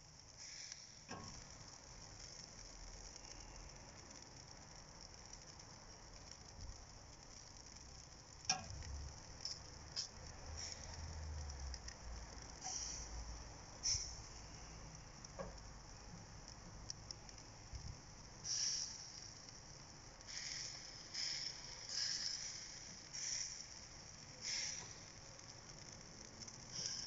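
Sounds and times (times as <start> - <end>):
meat sizzling over charcoal: 0.0 - 27.0
sharp pops: 0.3 - 4.4, 6.2 - 11.0, 20.2 - 27.0.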